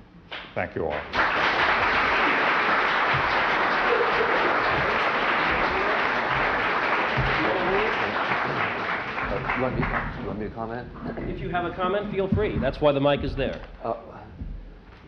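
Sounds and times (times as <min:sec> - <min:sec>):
audience applause: 0:00.9 - 0:10.8.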